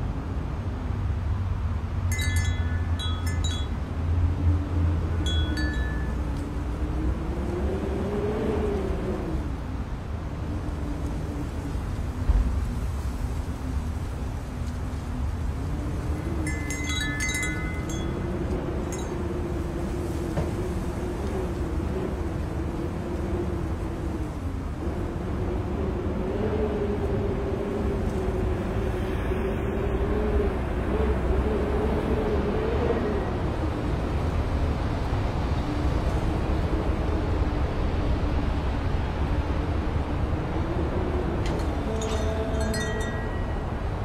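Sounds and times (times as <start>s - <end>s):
bright chime tones: 41.9s - 43.7s.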